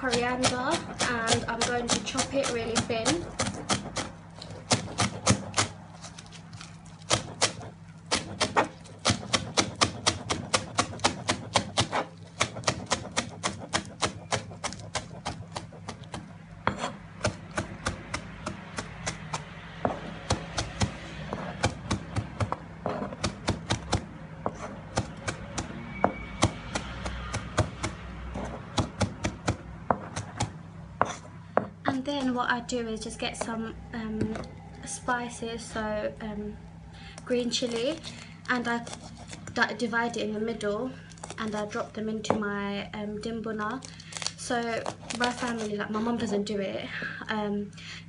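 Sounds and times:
knife chopping on cutting board: 0.0s - 5.7s, 7.1s - 31.7s.

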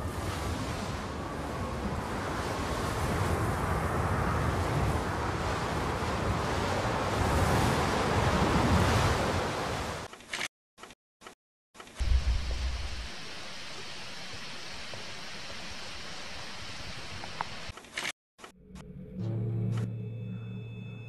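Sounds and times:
low rumble: 12.0s - 17.3s.

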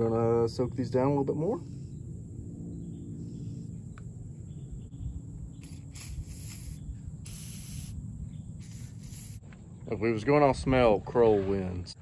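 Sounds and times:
aerosol can spraying: 5.6s - 8.0s, 8.6s - 9.4s.

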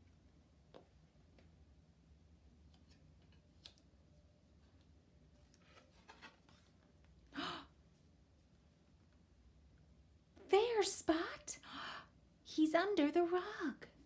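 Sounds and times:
cardboard page turning: 5.5s - 6.8s.

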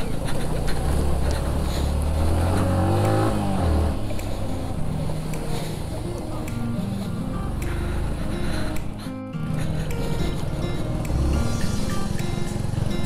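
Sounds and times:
vehicle engine revving: 0.0s - 6.2s, 10.4s - 13.0s.

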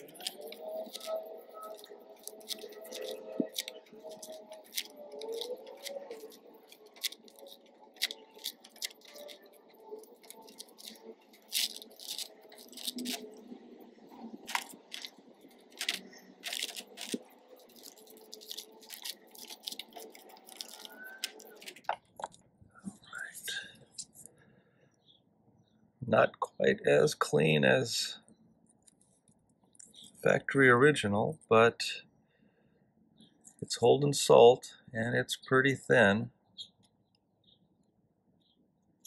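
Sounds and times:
razor blade scraping paper: 0.0s - 13.4s, 14.3s - 21.9s.

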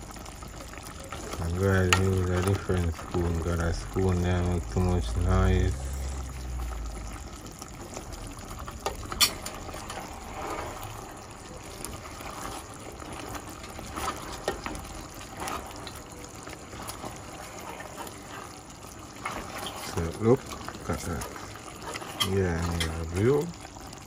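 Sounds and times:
sauce sloshing in a pot: 6.3s - 24.0s.

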